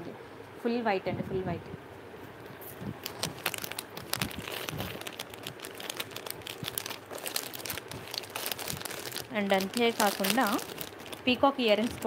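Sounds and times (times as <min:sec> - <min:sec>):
plastic packets crinkling: 0:02.9 - 0:12.0.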